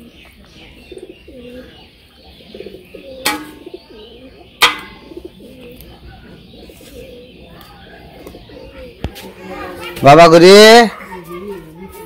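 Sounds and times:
doves cooing: 0.0s - 10.1s
metal bowls clanking: 3.2s - 3.8s, 4.6s - 5.3s.

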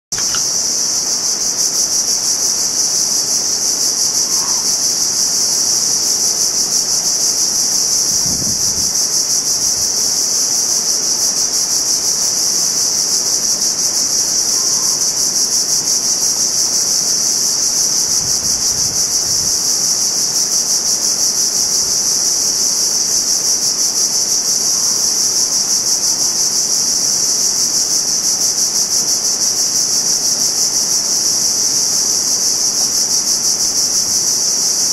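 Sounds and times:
insect chorus buzzing: 0.1s - 34.9s.

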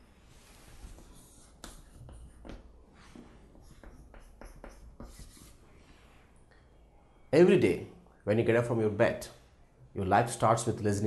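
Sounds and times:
chalk scratching on chalkboard: 0.4s - 5.7s.

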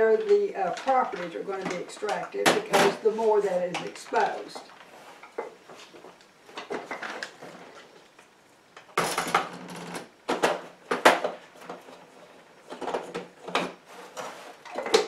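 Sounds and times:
scraping rustle: 13.8s - 14.8s.

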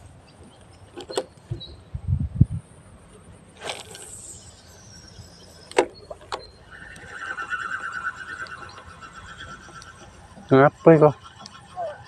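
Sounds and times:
fishing reel whirring: 3.6s - 5.7s, 6.4s - 12.0s.

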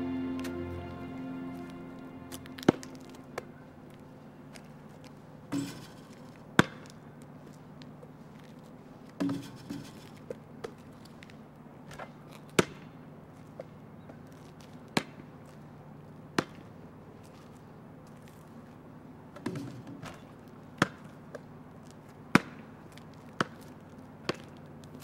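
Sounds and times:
faint steady hum: 0.0s - 11.8s
ball bouncing on hard ground: 22.3s - 24.6s.

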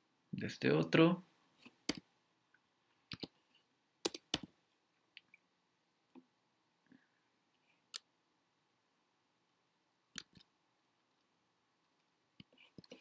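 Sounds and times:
computer mouse clicks: 3.1s - 3.4s, 4.0s - 4.5s, 10.1s - 10.5s.

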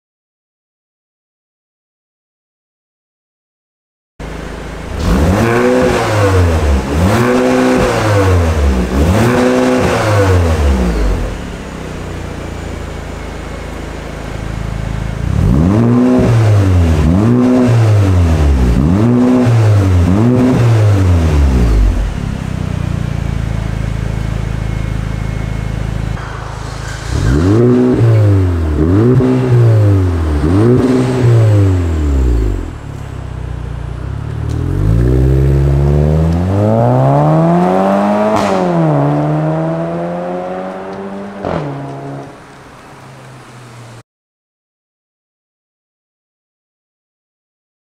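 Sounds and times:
car engine idling: 4.2s - 19.1s, 20.9s - 38.3s
car engine revving in blips: 4.2s - 44.0s.

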